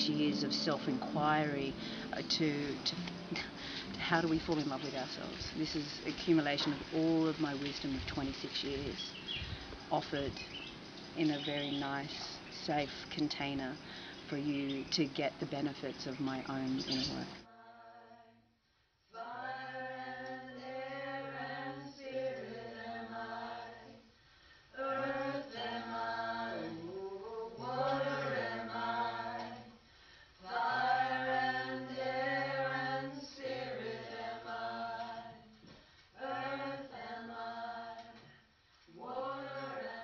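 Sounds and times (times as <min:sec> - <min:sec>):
chanted singing: 0:19.2 - 0:24.1, 0:24.8 - 0:29.8, 0:30.4 - 0:35.5, 0:36.2 - 0:38.3, 0:38.9 - 0:40.0.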